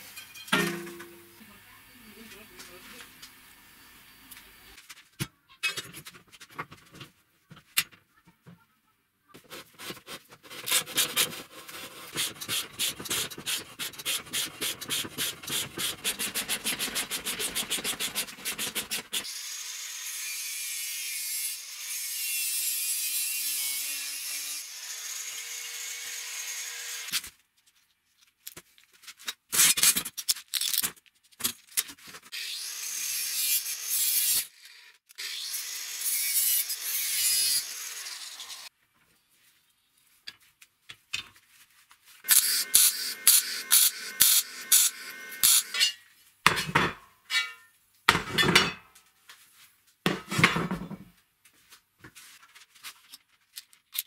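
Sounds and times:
angle grinder cutting steel: 12.2 - 27.1, 32.4 - 38.7, 42.3 - 46.0, 47.3 - 47.7.

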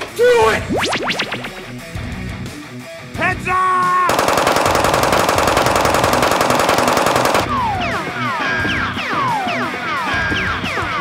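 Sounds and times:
quick falling pitched tones: 0.6 - 1.7
short rising pitched sound: 0.6 - 1.8
automatic gunfire: 4.1 - 7.7.

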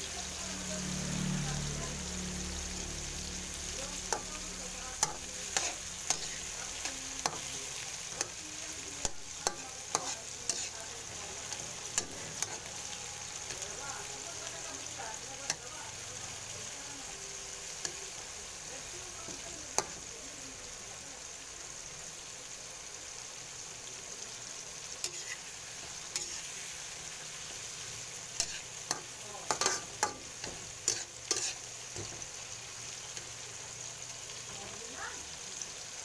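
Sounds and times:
vegetables sizzling in oil: 0.0 - 36.0
spatula scraping pan: 5.0 - 8.4, 9.0 - 13.6, 25.0 - 26.7, 28.4 - 32.3.

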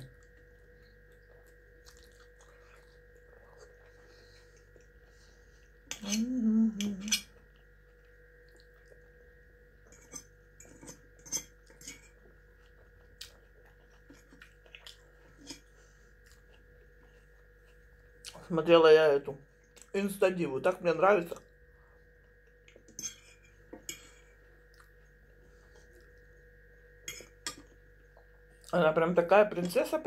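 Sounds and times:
chewing: 0.0 - 5.8, 7.0 - 9.2, 9.8 - 18.5, 21.4 - 26.5
electrical hum: 0.0 - 30.0.

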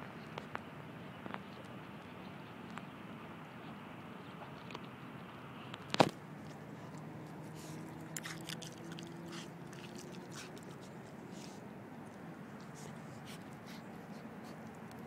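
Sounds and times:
dog crunching bones: 7.6 - 10.8.

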